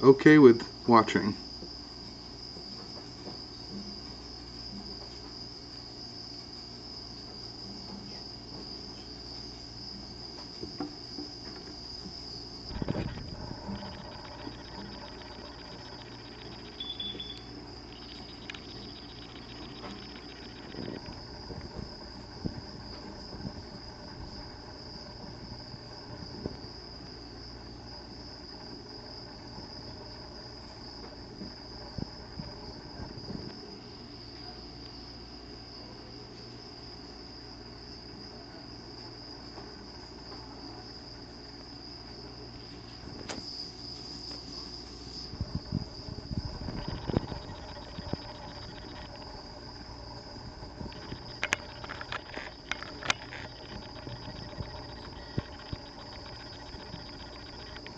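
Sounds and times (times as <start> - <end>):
high-pitched whine: 11.5 - 26.6, 44.3 - 57.9
low hum: 12.6 - 26.6, 45.1 - 57.9.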